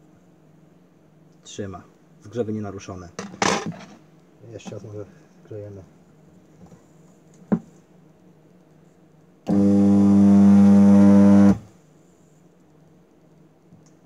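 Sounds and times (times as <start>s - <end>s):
spot welder humming: 9.5s - 11.7s.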